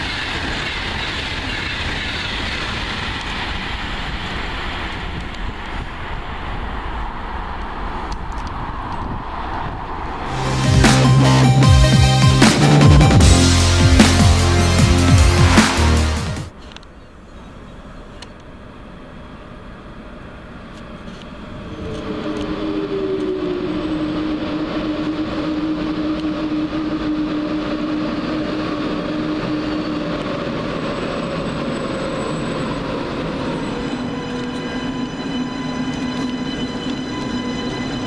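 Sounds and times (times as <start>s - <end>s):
train rumble: 0.0s - 38.0s
train whine falling in pitch: 10.3s - 16.5s, 21.3s - 38.0s.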